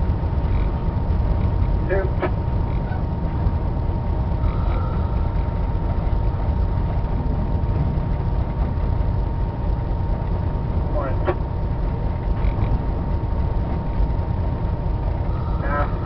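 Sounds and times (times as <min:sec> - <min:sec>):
locomotive deep rumble: 0:00.0 - 0:16.0
thin steady whine: 0:00.0 - 0:16.0.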